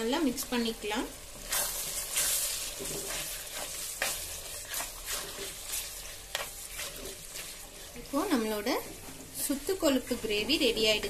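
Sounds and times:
steady sizzle: 0.0 - 11.0
spatula scraping pan: 1.3 - 9.3.

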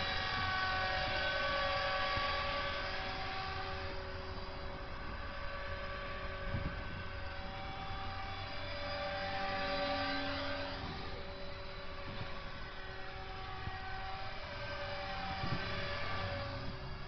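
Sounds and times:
model helicopter motor whine: 0.0 - 17.0.

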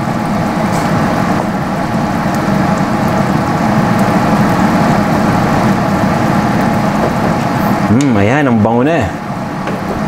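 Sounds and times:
sauce simmering: 0.0 - 7.9
steady low hum: 0.0 - 10.0.

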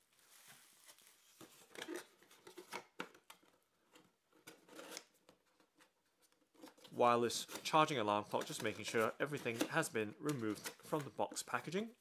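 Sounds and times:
cardboard and bubble-wrap rustling: 0.0 - 2.7.

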